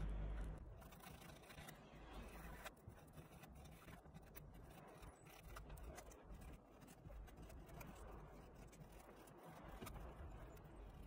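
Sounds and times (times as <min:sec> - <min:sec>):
needle file scraping cable: 0:00.6 - 0:11.0.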